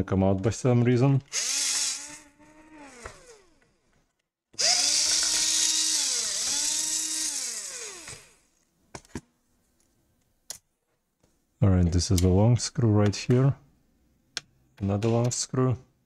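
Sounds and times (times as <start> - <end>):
electric screwdriver whining: 1.3 - 3.6, 4.6 - 8.5.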